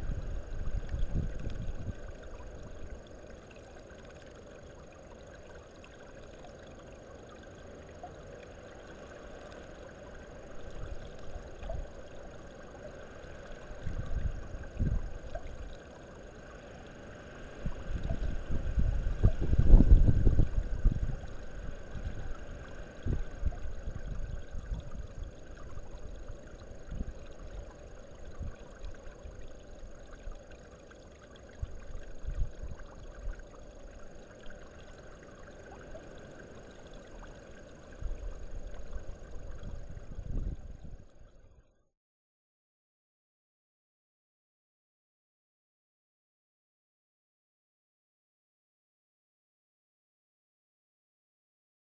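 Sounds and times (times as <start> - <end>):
wind buffeting microphone: 0.0 - 2.1, 17.6 - 21.4, 39.4 - 41.1
faint background hiss: 0.0 - 41.6.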